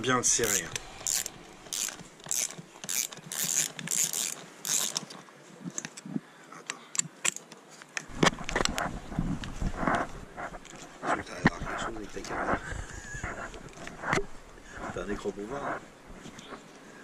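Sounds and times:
ratchet wrench clicking: 0:00.4 - 0:05.0.

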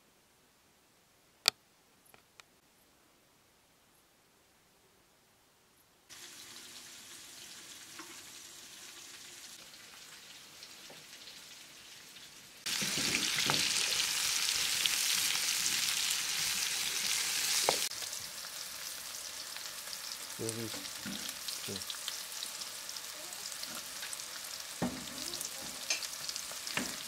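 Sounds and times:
vegetables sizzling in oil: 0:06.1 - 0:27.0.

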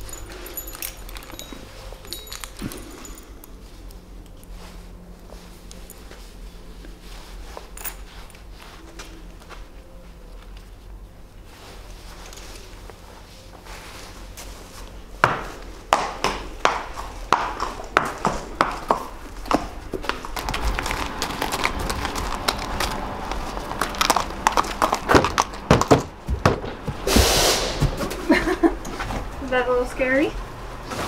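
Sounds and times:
horse hooves clopping: 0:00.0 - 0:10.9, 0:14.4 - 0:27.2
brief rushing noise: 0:27.0 - 0:28.1.

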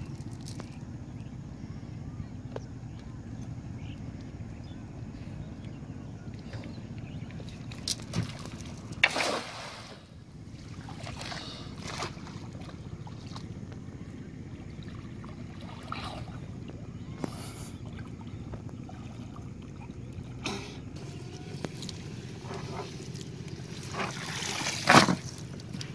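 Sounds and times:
water splashing from swimming: 0:07.6 - 0:13.6, 0:14.7 - 0:20.8, 0:21.4 - 0:25.5.

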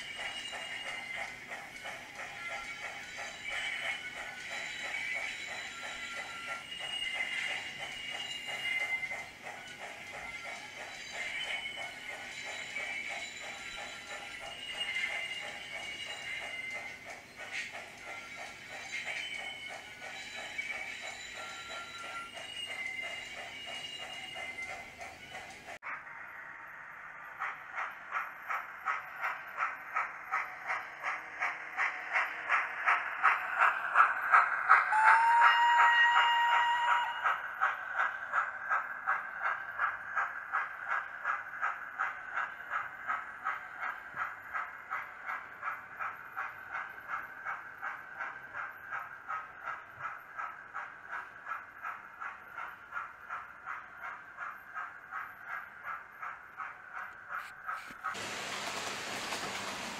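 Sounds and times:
model steam locomotive chuffing: 0:00.0 - 0:59.9
steam whistle blast: 0:34.9 - 0:37.2.

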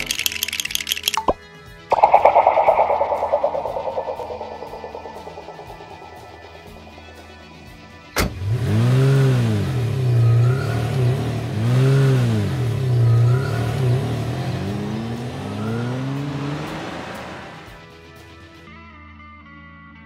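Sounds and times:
car engine revving: 0:08.3 - 0:17.8.

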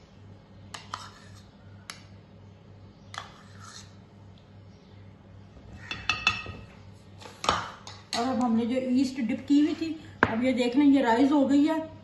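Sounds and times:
spoon scraping ceramic bowl: 0:00.7 - 0:01.6, 0:03.1 - 0:04.0.

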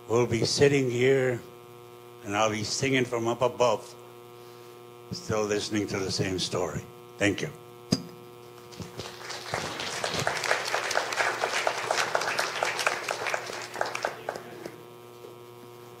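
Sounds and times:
electrical hum: 0:00.0 - 0:16.0
audience applauding: 0:08.7 - 0:14.9.

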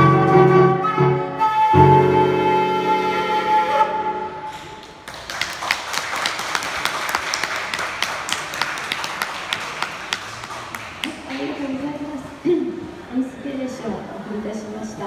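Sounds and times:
distinct hand claps: 0:04.5 - 0:11.6
audience applauding: 0:04.7 - 0:11.8.

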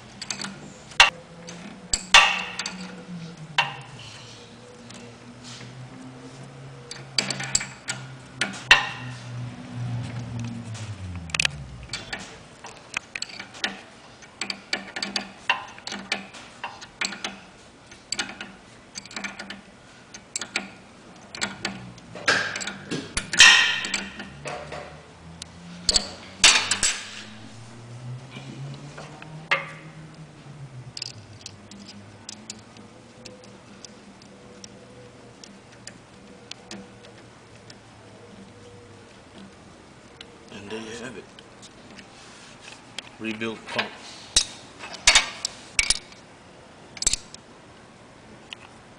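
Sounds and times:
tools clinking on brass fittings: 0:00.2 - 0:01.1, 0:01.9 - 0:03.0, 0:20.2 - 0:20.7, 0:21.3 - 0:24.9, 0:25.9 - 0:27.5, 0:43.8 - 0:46.2.

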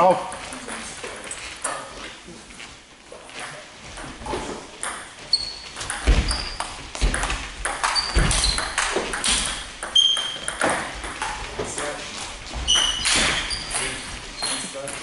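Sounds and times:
shoe squeaks on floor: 0:05.2 - 0:06.8, 0:07.8 - 0:10.6, 0:12.6 - 0:14.8.

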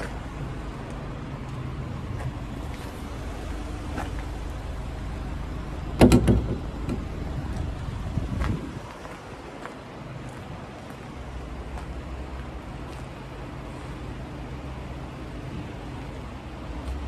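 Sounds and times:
van engine idling: 0:00.0 - 0:17.0
knocks and clatter on door: 0:06.0 - 0:07.0.

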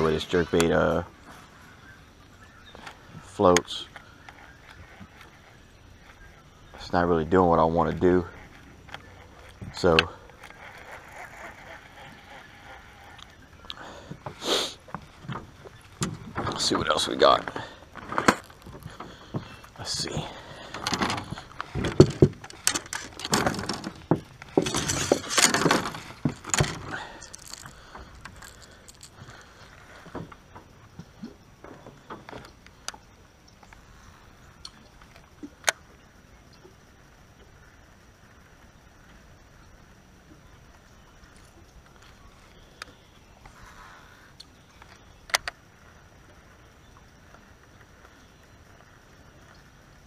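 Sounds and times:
quiet outdoor background: 0:00.0 - 0:50.0
fishing reel clicks: 0:08.2 - 0:13.8
fishing tackle clinking and rattling: 0:16.0 - 0:30.1.

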